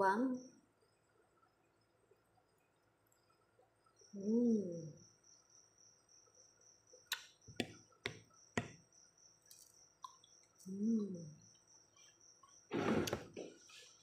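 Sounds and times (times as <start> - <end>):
cricket chirping: 0.0 - 14.0
eating clicks: 9.5 - 11.5.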